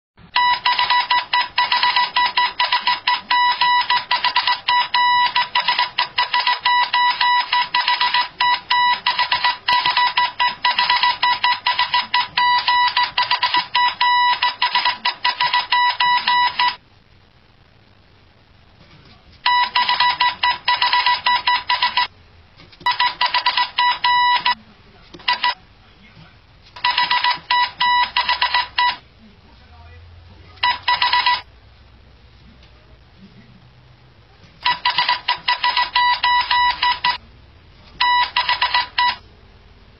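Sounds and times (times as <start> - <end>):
morse code beeping: 0.4 - 16.8, 19.4 - 22.1, 22.8 - 24.6, 25.2 - 25.6, 26.8 - 29.0, 30.6 - 31.5, 34.6 - 37.2, 38.0 - 39.2.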